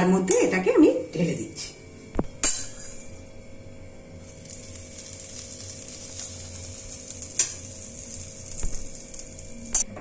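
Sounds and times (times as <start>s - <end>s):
hot oil sizzling: 4.0s - 10.0s.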